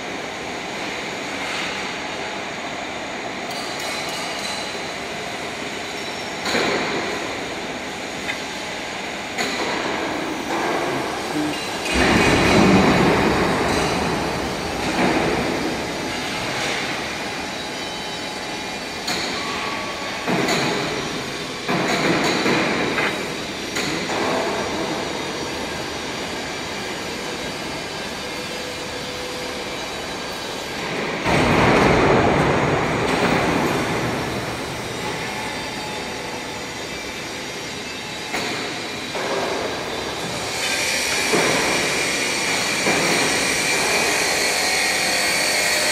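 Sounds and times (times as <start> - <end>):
machinery noise: 3.5 - 45.9.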